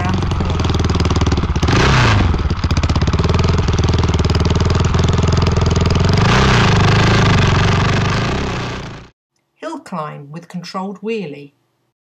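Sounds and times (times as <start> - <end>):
motorcycle engine revving: 0.0 - 9.1.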